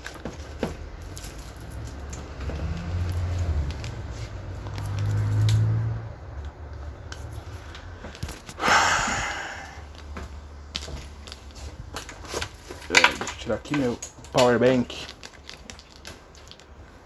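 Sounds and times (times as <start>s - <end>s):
loud hiss: 8.6s - 9.9s.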